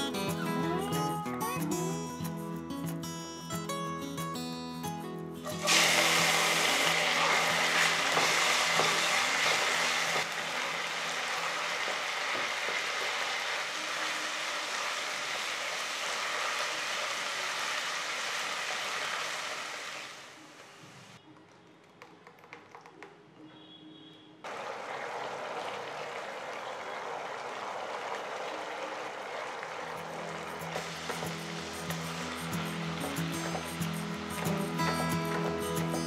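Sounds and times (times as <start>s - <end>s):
onions sizzling in hot oil: 5.6s - 20.7s, 30.0s - 36.0s.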